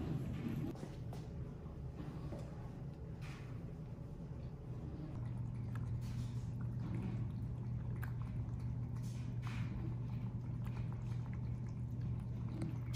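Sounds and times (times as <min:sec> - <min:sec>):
cats chewing wet food: 0:04.3 - 0:12.9.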